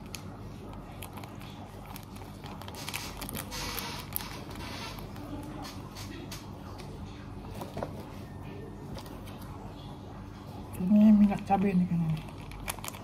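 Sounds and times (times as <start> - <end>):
sachets rustling: 0.7 - 5.8, 12.0 - 13.0.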